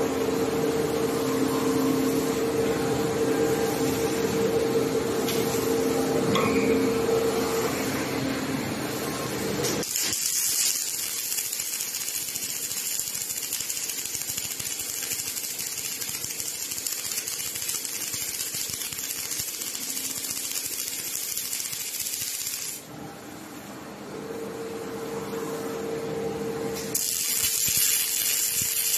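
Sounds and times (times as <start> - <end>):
machine hum with held tone: 0.0 - 28.9
welding arc crackling hiss: 9.7 - 22.9, 27.0 - 28.9.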